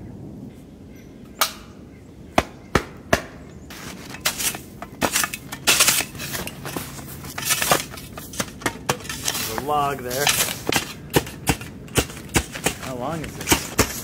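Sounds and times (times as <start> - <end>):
shovel chopping and scraping snow: 2.8 - 14.0
snow shovel clicks: 3.7 - 14.0.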